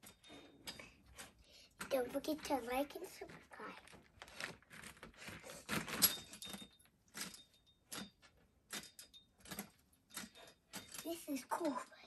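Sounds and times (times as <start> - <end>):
metal gymnastics bar clanking: 5.9 - 11.4.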